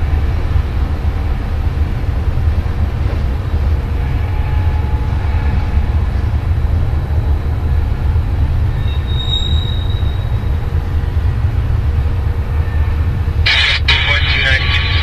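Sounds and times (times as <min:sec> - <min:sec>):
freight train rumbling past: 0:00.0 - 0:15.0
train wheel squeal: 0:04.0 - 0:06.4, 0:08.7 - 0:11.2.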